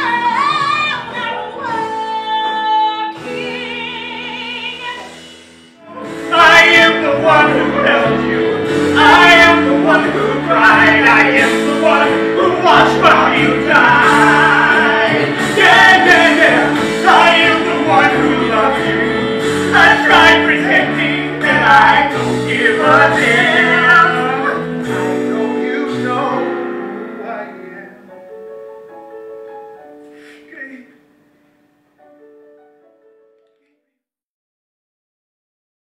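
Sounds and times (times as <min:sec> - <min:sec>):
band accompaniment: 0:00.0 - 0:28.5
man and woman singing: 0:05.8 - 0:28.0.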